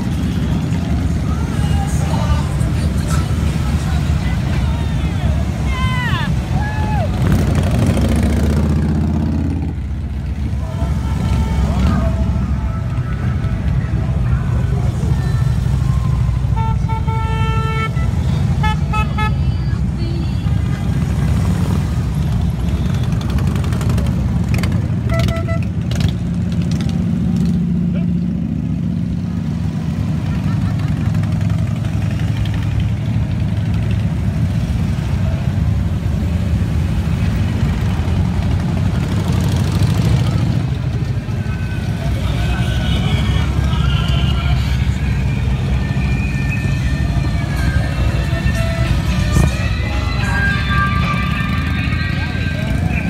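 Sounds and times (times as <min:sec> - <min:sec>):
motorcycle engines rumbling: 0:00.0 - 0:53.0
horn beeps: 0:25.0 - 0:25.8, 0:44.3 - 0:53.0.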